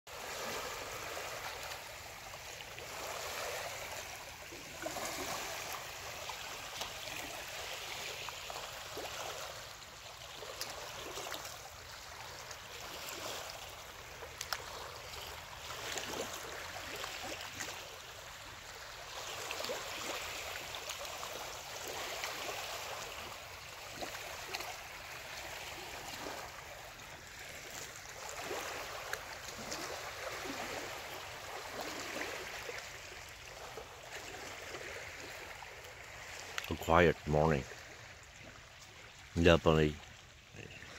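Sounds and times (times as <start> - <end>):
waves lapping on rocky shore: 0.1 - 40.9
water clicking on stone: 14.4 - 14.6.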